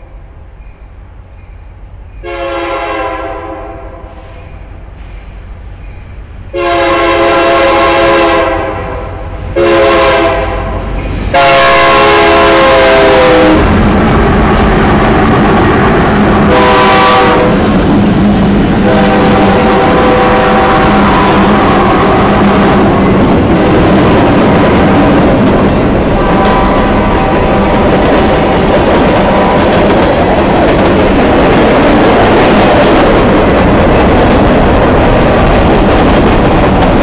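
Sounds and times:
diesel locomotives rumbling past: 0.0s - 37.0s
locomotive air horn blasts: 2.2s - 4.4s, 6.5s - 13.8s, 16.4s - 17.7s, 18.8s - 23.3s, 26.1s - 29.7s.

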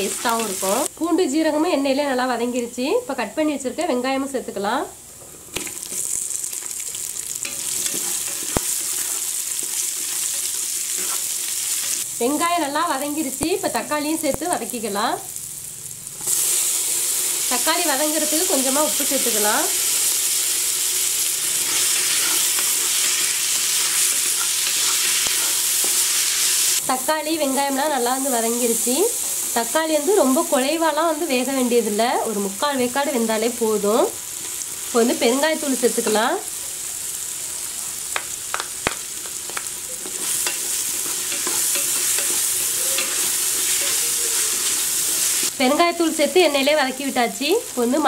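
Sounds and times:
vegetables sizzling in hot oil: 0.0s - 48.0s.

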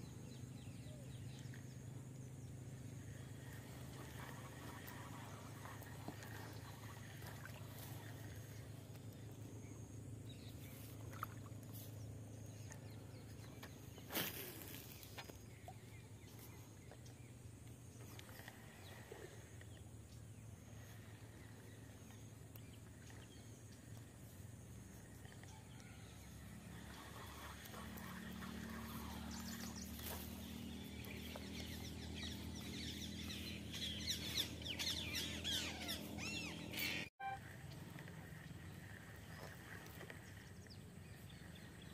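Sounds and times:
steady low hum: 0.0s - 41.9s
birds chirping: 24.9s - 41.9s.

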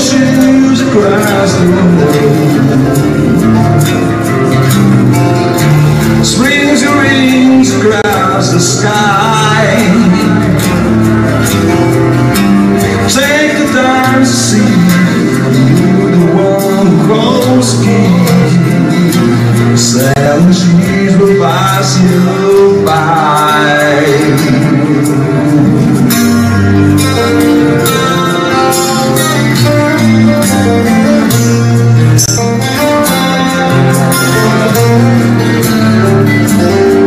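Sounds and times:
man singing: 0.0s - 4.4s, 6.1s - 11.5s, 12.8s - 26.1s
strummed acoustic guitars: 0.0s - 37.0s.

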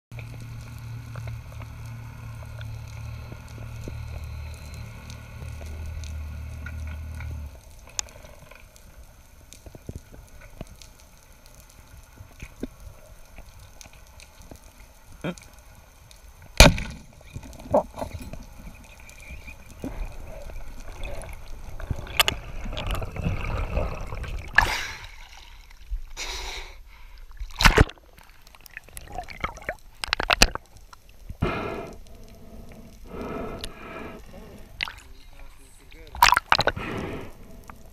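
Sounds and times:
low underwater hum: 0.1s - 37.9s
rushing bubbling water: 16.4s - 26.2s, 27.2s - 37.9s
speargun firing crack: 16.6s - 17.0s.

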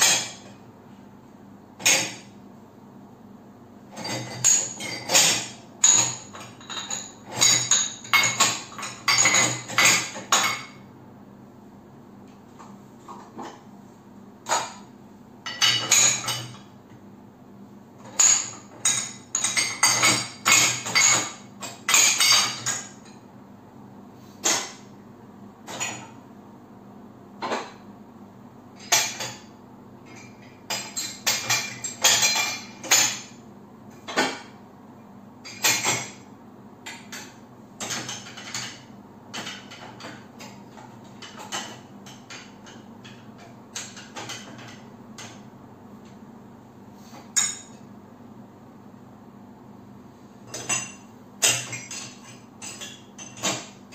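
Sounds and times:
dishes clinking in dishwasher rack: 0.0s - 0.6s, 1.8s - 2.4s, 3.9s - 10.8s, 14.4s - 16.8s, 18.0s - 23.2s, 24.4s - 24.9s, 25.6s - 26.2s, 27.4s - 27.8s, 28.8s - 34.6s, 35.4s - 45.5s, 47.2s - 47.9s, 50.4s - 53.9s.

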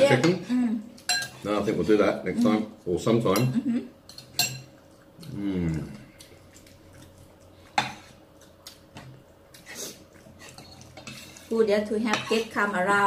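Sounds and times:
spoons clinking on plates: 1.0s - 1.4s, 3.3s - 4.8s
murmured voice: 5.2s - 6.1s.

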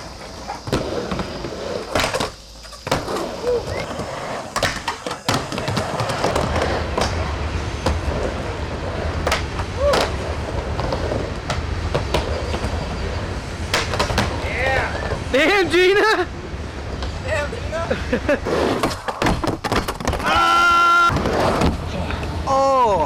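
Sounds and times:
skateboard wheels rolling on wood: 0.0s - 22.7s
skateboard clacking on coping: 0.1s - 8.3s.

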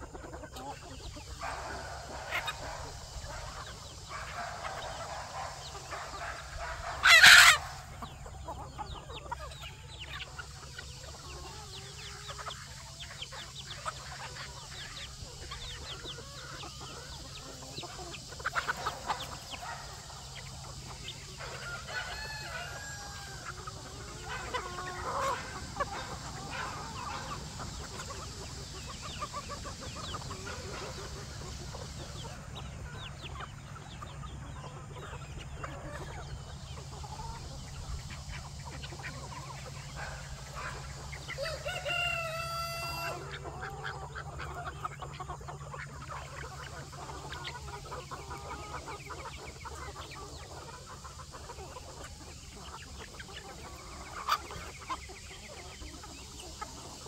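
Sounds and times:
chickens clucking: 0.0s - 57.0s
rooster crowing: 21.2s - 27.4s, 40.0s - 43.4s.

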